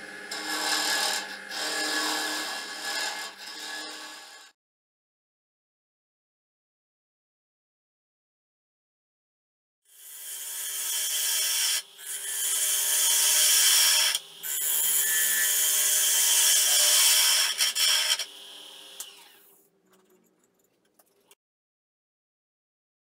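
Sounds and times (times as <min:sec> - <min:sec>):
wood lathe humming: 0:00.0 - 0:04.5.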